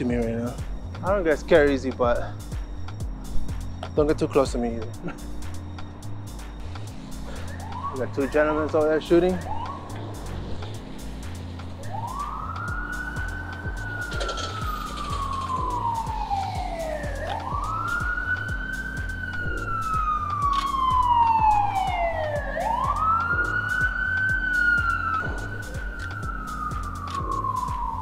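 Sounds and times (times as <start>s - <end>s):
background music with bass: 0.0s - 28.0s
emergency siren wailing: 6.4s - 28.0s.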